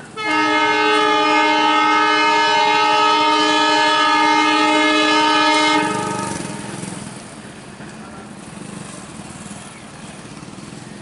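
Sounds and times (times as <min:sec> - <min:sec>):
locomotive air horn blast: 0:00.2 - 0:06.8.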